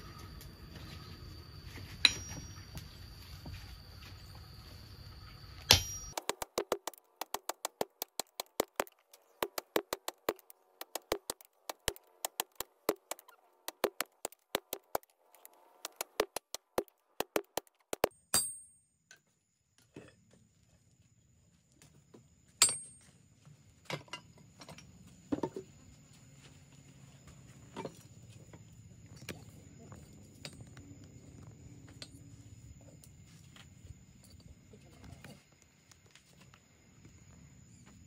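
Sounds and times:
hammer clinking on metal: 0:02.0 - 0:02.6, 0:05.7 - 0:06.2, 0:18.1 - 0:18.8, 0:22.6 - 0:23.0
steady noise: 0:06.0 - 0:15.1, 0:15.8 - 0:18.1.

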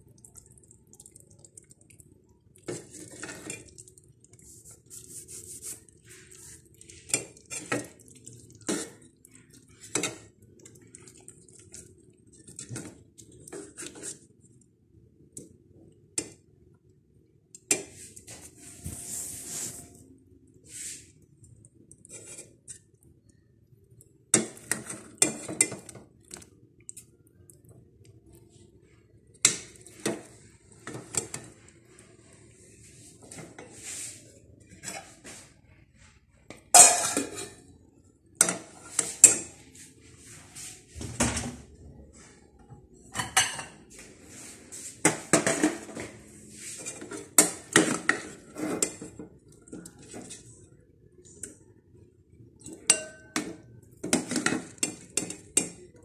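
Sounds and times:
metal tongs scraping a steel pot: 0:46.8 - 0:50.4.

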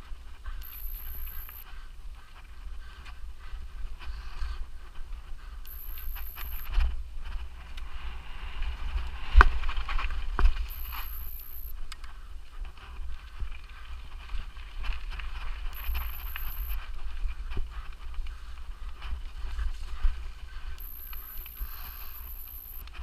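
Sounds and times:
wind rumbling on microphone: 0:06.6 - 0:10.7.

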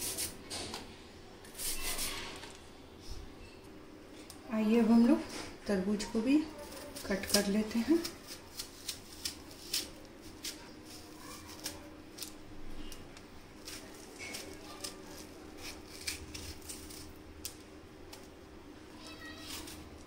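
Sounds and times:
knife cutting watermelon: 0:13.6 - 0:17.2.

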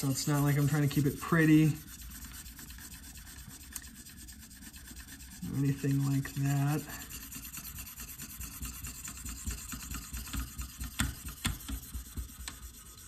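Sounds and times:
sharpening stone rasping on knife: 0:06.9 - 0:11.7.

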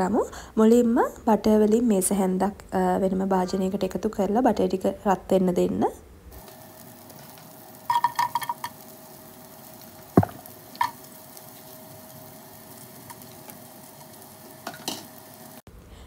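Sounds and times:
faint steady hum: 0:00.0 - 0:16.0
butter sizzling in a pot: 0:06.4 - 0:15.6
sharp knock: 0:10.2 - 0:10.5
onions dropped into pot: 0:10.2 - 0:11.0.

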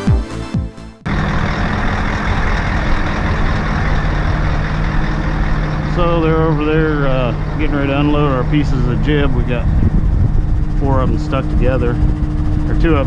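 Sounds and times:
electronic music with kick drum: 0:00.0 - 0:01.0
crane diesel engine running: 0:01.1 - 0:13.0
man talking: 0:05.9 - 0:09.8, 0:10.8 - 0:12.0, 0:12.7 - 0:13.0.

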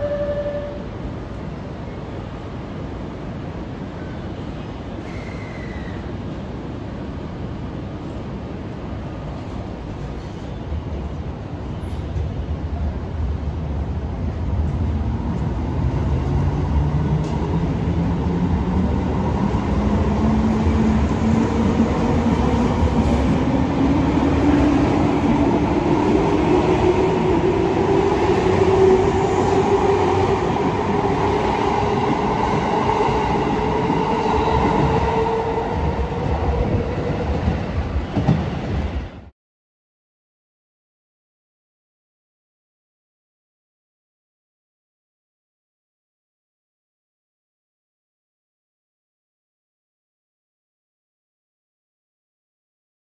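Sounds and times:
train cars rolling on rails: 0:07.8 - 0:39.2.

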